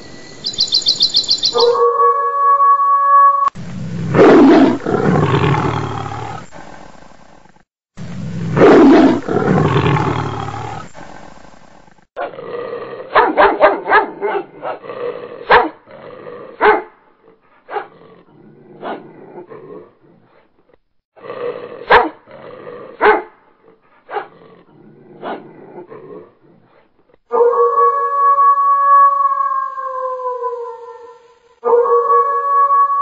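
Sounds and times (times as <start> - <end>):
dog yelping and barking: 1.4 - 2.1
big cat roaring: 3.4 - 7.4, 8.0 - 11.3.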